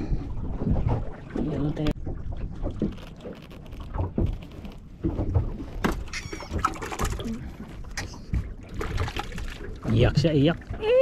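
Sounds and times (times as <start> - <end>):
high wavering fish squeak: 6.0 - 6.8.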